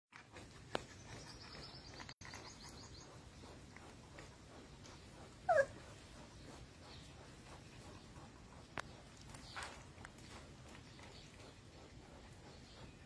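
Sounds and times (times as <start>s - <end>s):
puppy squeaking: 5.5s - 5.8s.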